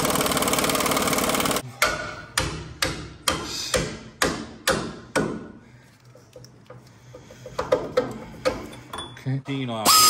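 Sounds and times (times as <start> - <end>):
hammer striking rusted metal: 1.7 - 5.6.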